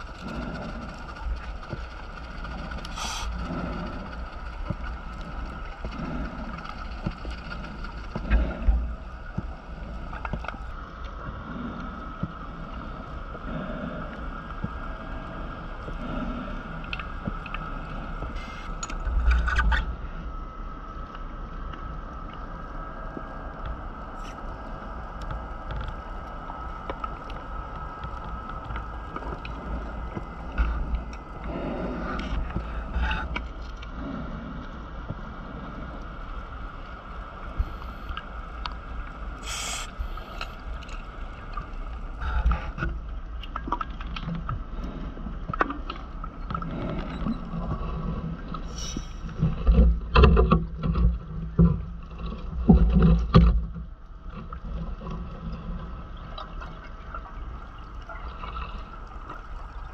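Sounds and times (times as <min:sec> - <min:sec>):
underwater low rumble and hiss: 0:00.0 - 0:59.9
gurgling bubbles: 0:56.1 - 0:59.9.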